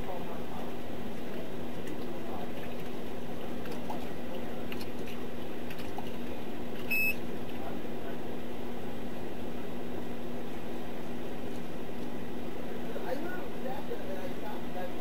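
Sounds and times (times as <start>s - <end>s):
low hum and hiss: 0.0s - 15.0s
short electronic beep: 6.9s - 7.2s.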